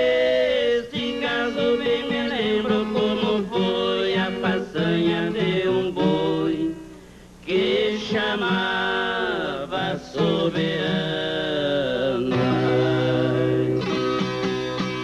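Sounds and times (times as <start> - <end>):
men singing: 0.0 - 14.0
plucked acoustic strings: 12.3 - 15.0.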